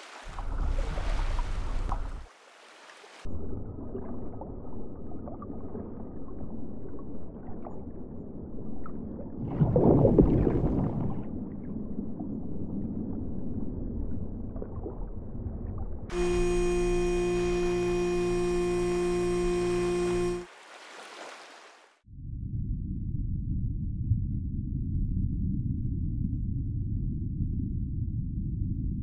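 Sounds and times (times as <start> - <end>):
air bubbles gurgling: 9.0 - 15.8.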